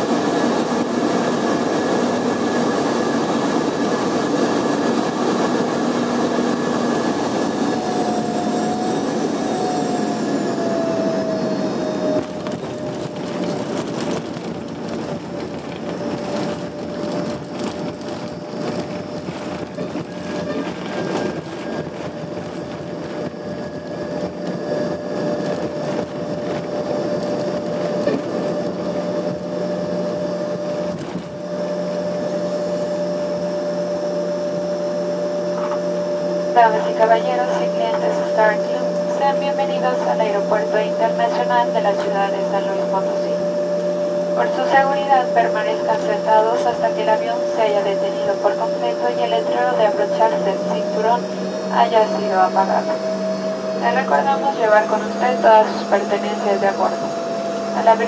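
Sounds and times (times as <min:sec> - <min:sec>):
runway rumble: 0:00.0 - 0:33.4
jet engine whine: 0:00.0 - 0:58.0.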